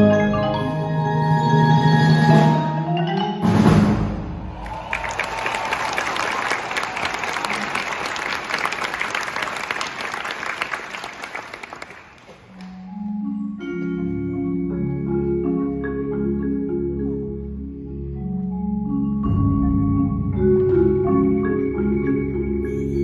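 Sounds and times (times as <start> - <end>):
marimbas and mallet percussion playing: 0.0 - 4.5, 12.6 - 23.0.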